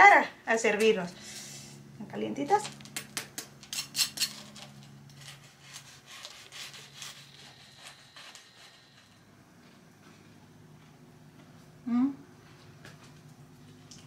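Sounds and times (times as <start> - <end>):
knife cutting crunchy crust: 5.1 - 8.9.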